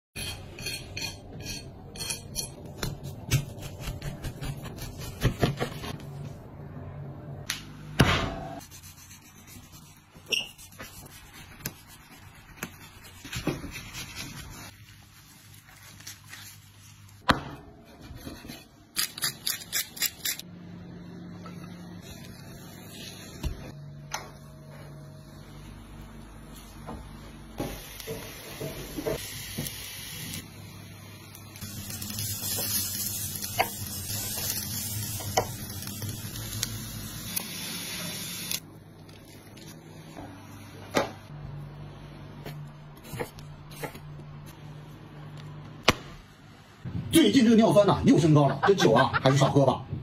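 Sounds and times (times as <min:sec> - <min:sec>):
knife chopping: 0:02.8 - 0:05.9.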